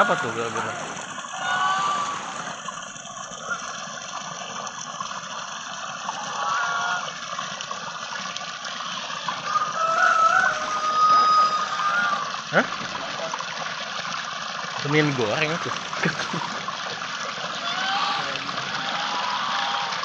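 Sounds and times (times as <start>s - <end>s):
geese calling: 0.0s - 2.5s, 3.4s - 3.8s, 6.0s - 7.2s, 8.8s - 12.3s, 17.4s - 20.0s
running water: 0.0s - 20.0s.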